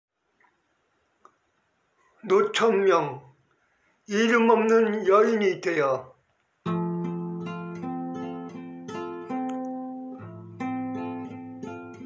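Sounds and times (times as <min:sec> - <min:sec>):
acoustic guitar plucking: 0:06.6 - 0:12.0.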